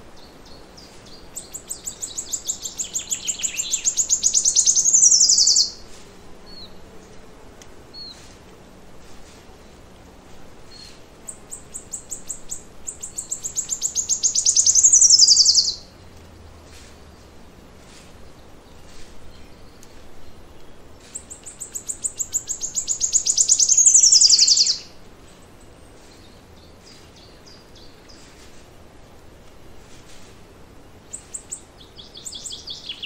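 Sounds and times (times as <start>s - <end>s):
faint distant bird chirps: 0.0s - 7.2s, 10.6s - 28.6s, 29.9s - 33.0s
songbird trilling: 0.2s - 5.9s, 10.7s - 15.9s, 21.0s - 25.0s, 31.0s - 33.0s.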